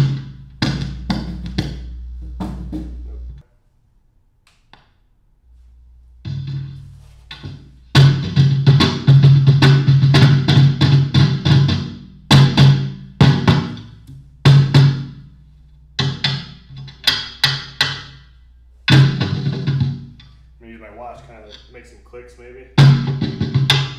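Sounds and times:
hand drum booms with rattle: 0.0s - 3.2s, 6.3s - 15.2s, 18.9s - 20.3s, 22.8s - 23.9s
low amplifier hum: 0.0s - 23.9s.

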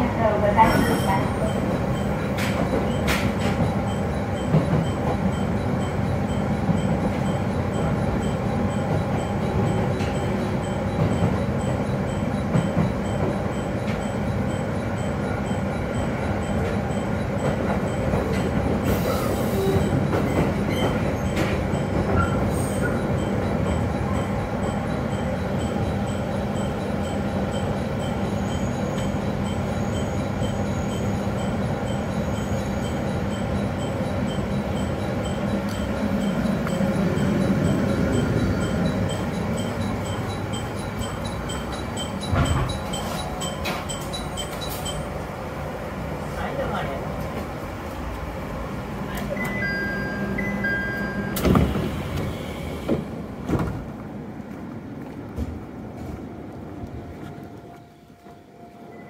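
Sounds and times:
train carriage running noise: 0.0s - 59.0s
electronic door chime: 20.4s - 45.3s, 49.4s - 51.6s
footsteps on pavement: 53.6s - 58.4s.

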